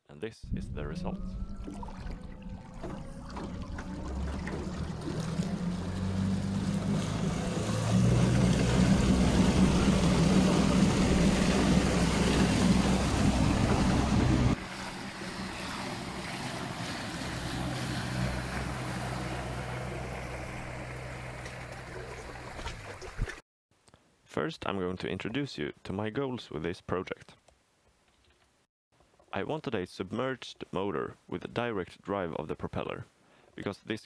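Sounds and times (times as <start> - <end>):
wind hitting microphone: 0.4 - 4.1
water rushing past hull: 0.4 - 23.4
electric motor hum: 0.5 - 21.9.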